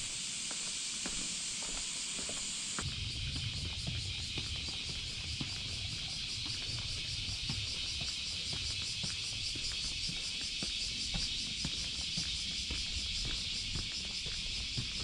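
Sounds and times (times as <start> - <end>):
steady high hiss: 0.0 - 14.8
low rumble: 2.8 - 7.8.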